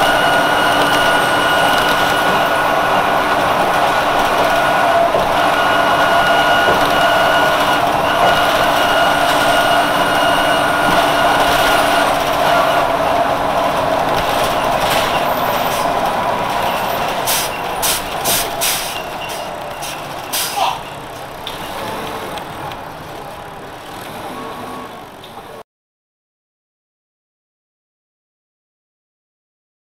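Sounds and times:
bus engine whine: 0.0s - 25.6s
air hissing: 17.3s - 19.0s.

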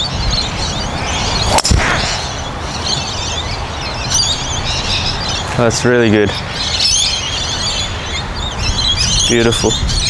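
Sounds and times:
birds chirping: 0.0s - 10.0s
wind rumble: 0.0s - 10.0s
golf driver striking ball: 1.5s - 2.3s.

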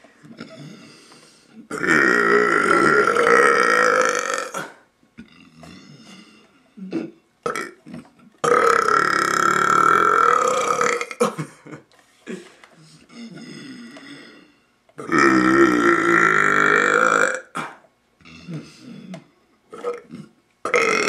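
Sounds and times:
man belching loudly: 1.7s - 6.1s, 6.8s - 11.2s, 15.0s - 18.6s, 19.7s - 21.0s.

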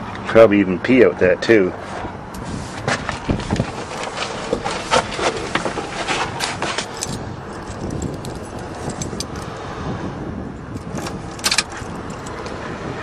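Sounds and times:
truck engine running: 2.2s - 13.0s
sharp clicks and jingles: 6.4s - 9.6s, 10.8s - 12.6s.

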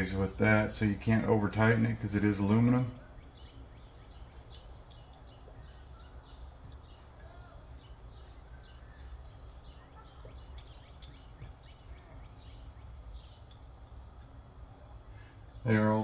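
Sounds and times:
low steady hum: 0.0s - 16.0s
allen wrench clicks: 10.5s - 11.5s.

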